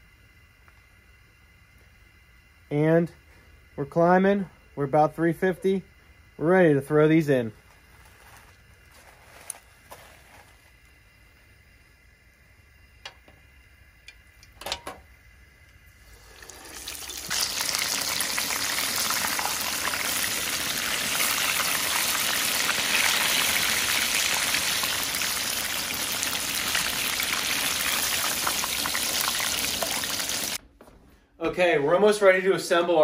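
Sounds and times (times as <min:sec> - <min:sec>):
chicken deep-frying in oil: 0:13.1 - 0:30.6.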